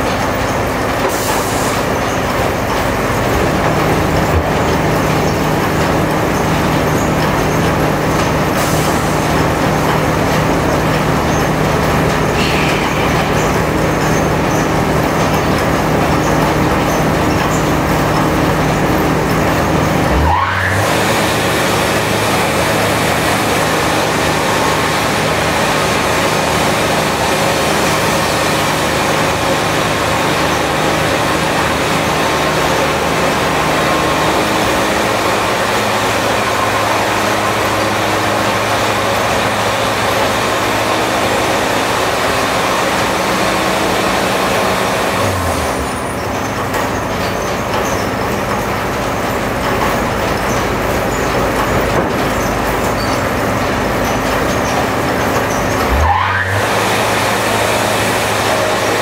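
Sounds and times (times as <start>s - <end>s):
sawmill engine: 0.0s - 59.0s
sawmill hiss: 1.0s - 2.2s, 8.3s - 11.0s.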